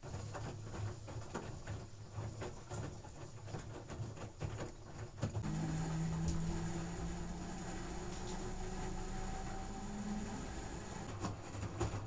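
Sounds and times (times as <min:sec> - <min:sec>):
washing machine humming: 0:05.3 - 0:12.0
washing machine mechanical pulses: 0:05.4 - 0:12.0.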